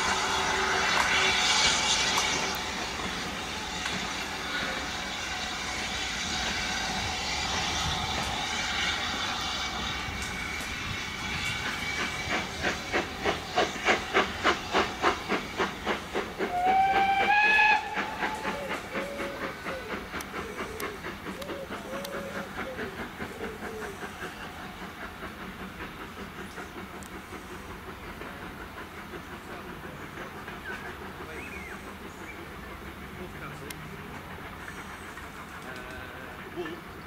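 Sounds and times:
steam locomotive exhaust beats: 0.0s - 37.0s
steam whistle: 16.4s - 19.4s.

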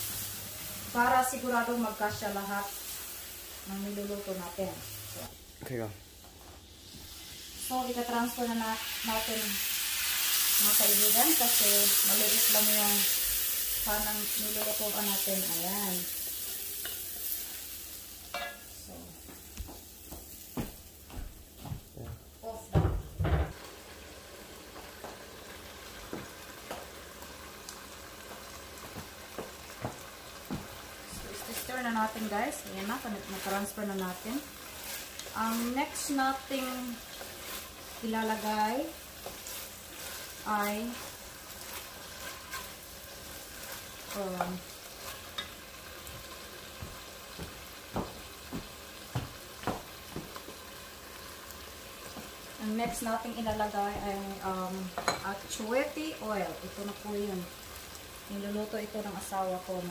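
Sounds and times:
meat sizzling in a pot: 0.0s - 59.9s
small pops of frying: 5.2s - 21.2s, 22.7s - 59.9s
wooden spoon stirring: 32.6s - 36.3s, 36.9s - 44.2s.

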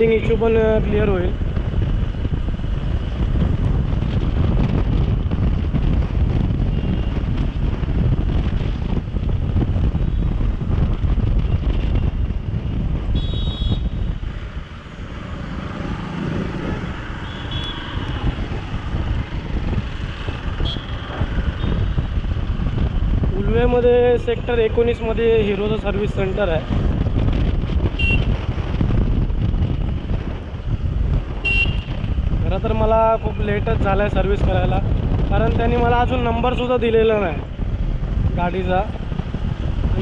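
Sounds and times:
wind rushing over microphone: 0.0s - 40.0s
motorcycle engine: 1.4s - 23.2s.

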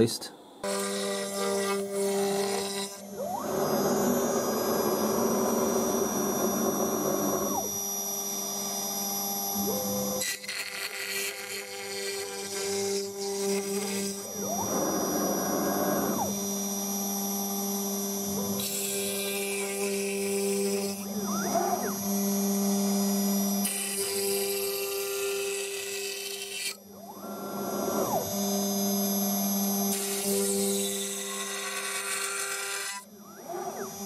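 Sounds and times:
router spindle hum and whine: 0.0s - 34.0s
gantry motor noise: 31.0s - 34.0s.

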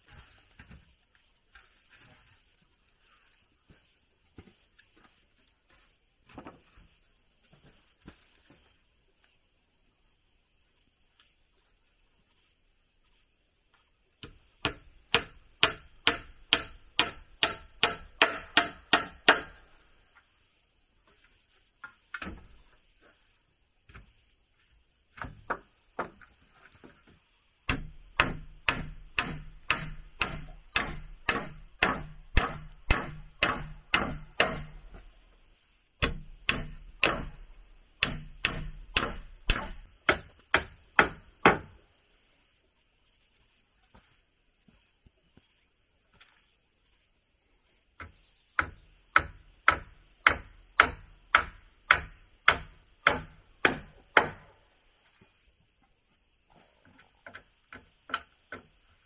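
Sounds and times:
hand tool striking wood: 14.2s - 19.7s, 27.7s - 35.1s, 36.0s - 41.8s, 48.0s - 54.6s, 57.2s - 58.8s.

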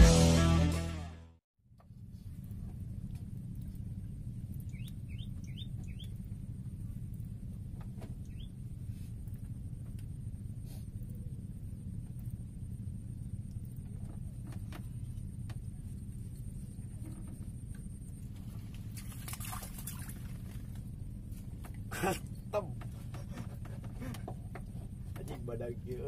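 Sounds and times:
steady low rumble: 1.7s - 26.0s
small bird chirping: 4.5s - 6.5s, 8.1s - 9.3s.

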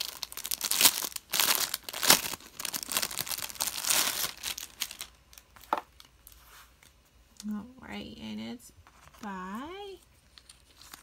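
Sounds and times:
sharp plastic crackles: 0.0s - 6.4s
plastic wrapping crinkling: 0.0s - 7.0s, 10.2s - 11.0s.

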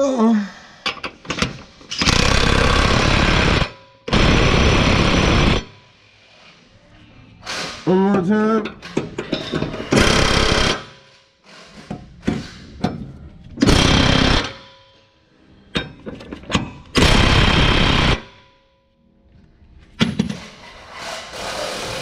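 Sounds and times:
impact wrench hammering: 9.0s - 11.0s, 13.6s - 14.9s.

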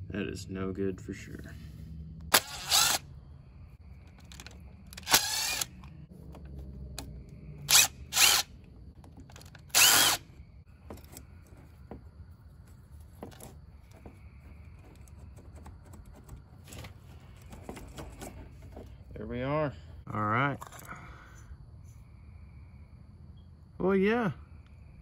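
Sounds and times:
cordless drill whirring: 2.3s - 3.0s, 4.3s - 5.9s, 7.6s - 8.5s, 9.3s - 10.4s
metal parts clicking: 4.1s - 5.9s.

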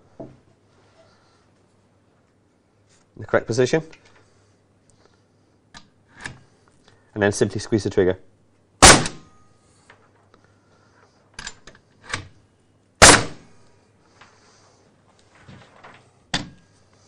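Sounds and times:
nail gun bang: 8.8s - 9.4s, 13.0s - 13.6s.

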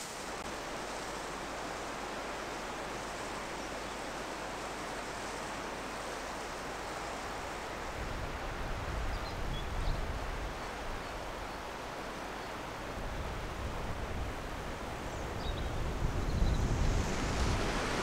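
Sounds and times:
steady rushing outdoor noise: 0.0s - 18.0s
wind rumbling on microphone: 7.3s - 11.6s, 12.6s - 18.0s.

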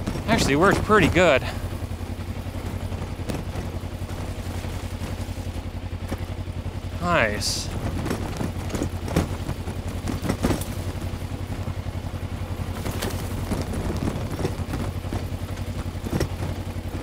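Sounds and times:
bike knocking over rough ground: 0.0s - 17.0s
motorcycle engine running: 0.0s - 17.0s.

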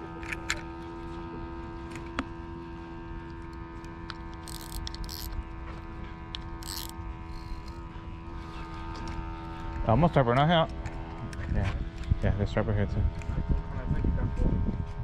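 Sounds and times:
steady hum with held tones: 0.0s - 15.0s
fishing reel drag rasps: 3.4s - 5.6s, 6.3s - 10.6s.

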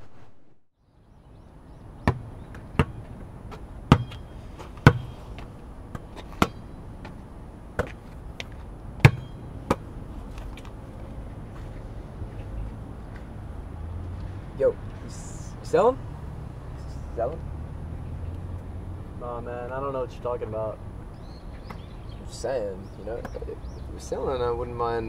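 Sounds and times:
ball thudding: 2.0s - 6.6s, 7.7s - 8.0s, 9.0s - 9.9s.

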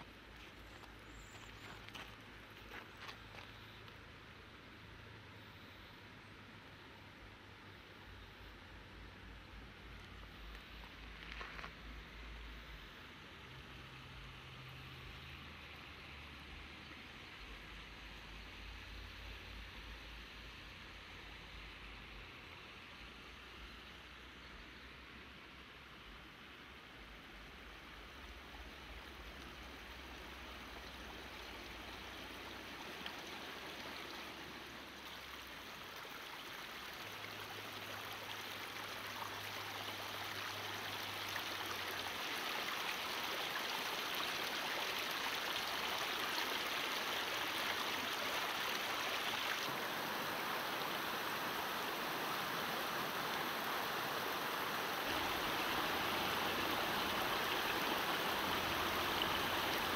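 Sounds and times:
river water rushing over rocks: 27.3s - 59.9s.

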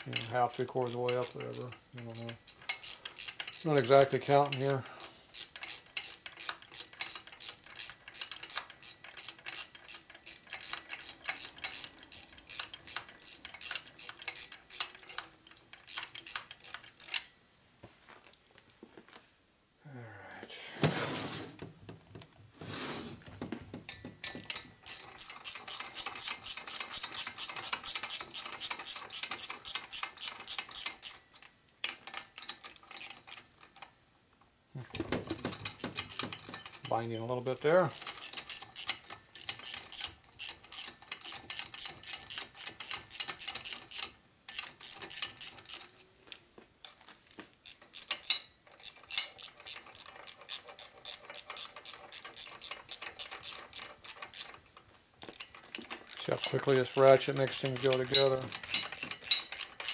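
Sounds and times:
ratchet wrench clicking: 0.0s - 17.3s, 24.2s - 31.2s, 35.5s - 37.0s, 37.6s - 45.9s, 47.6s - 54.6s, 55.2s - 59.9s.

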